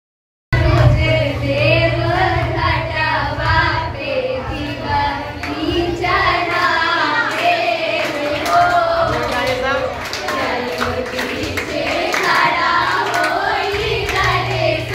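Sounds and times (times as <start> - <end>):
girls singing into a microphone: 0.6 - 14.9
steady low hum: 0.6 - 14.9.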